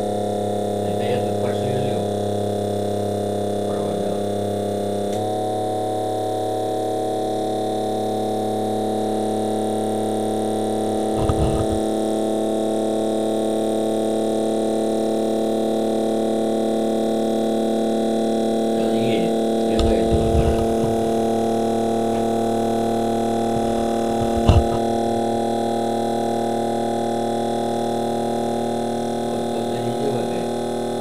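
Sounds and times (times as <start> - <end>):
electric motor humming: 11.1 - 11.9, 18.8 - 26.5
low thump: 11.2 - 11.8.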